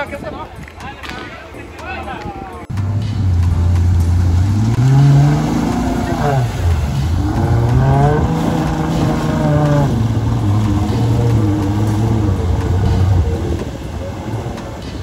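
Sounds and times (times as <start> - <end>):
vehicle driving through mud and water: 2.7 - 15.0
engine revving hard: 3.1 - 14.5.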